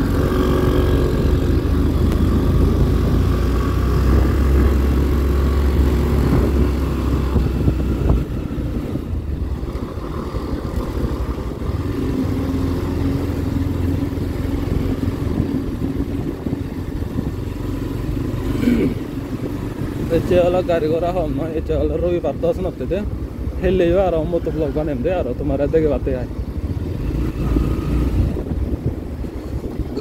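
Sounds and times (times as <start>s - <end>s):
motorcycle engine running: 0.0s - 21.6s.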